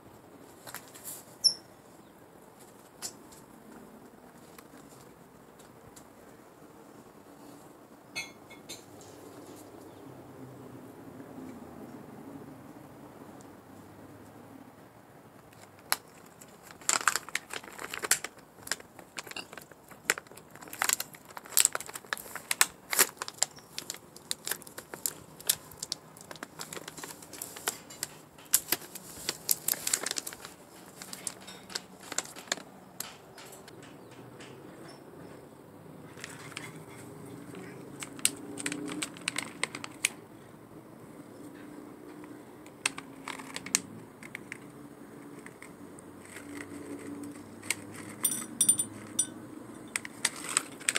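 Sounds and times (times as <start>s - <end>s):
plastic pouch crinkling: 15.6s - 32.8s, 38.0s - 40.1s.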